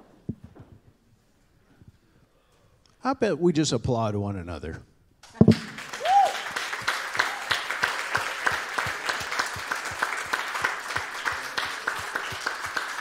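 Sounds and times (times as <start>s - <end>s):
close person clapping steadily: 5.5s - 13.0s
crowd applauding: 5.5s - 13.0s.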